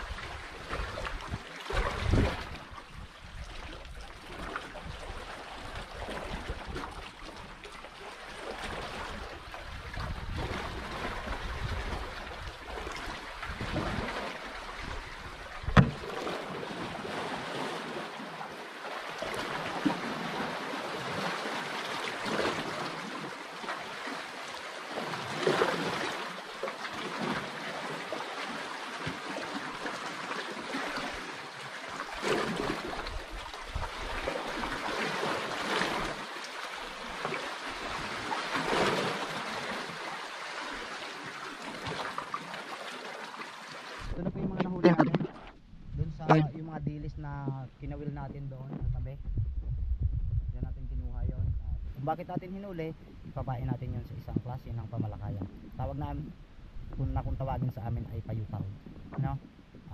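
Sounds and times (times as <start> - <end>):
water lapping against canoe hull: 0.0 - 59.9.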